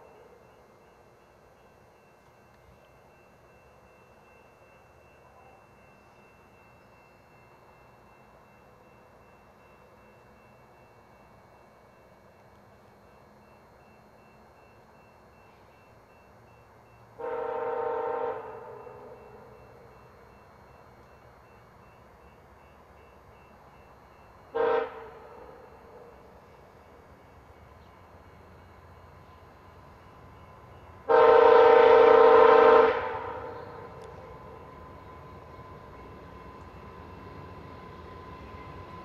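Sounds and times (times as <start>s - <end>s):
locomotive air horn: 17.2s - 19.2s, 24.5s - 25.7s, 31.0s - 34.2s.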